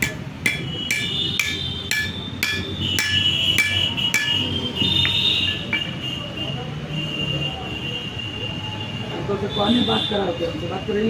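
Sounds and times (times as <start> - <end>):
hammer tapping on metal: 0.0 - 6.0.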